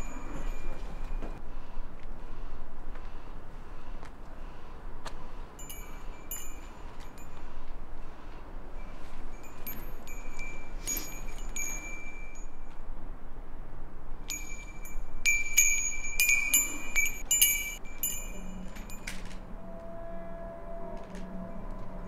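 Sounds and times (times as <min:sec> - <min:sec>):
brass wind chime tinkling: 0:00.0 - 0:01.2, 0:05.6 - 0:07.5, 0:08.8 - 0:12.7, 0:14.3 - 0:19.4.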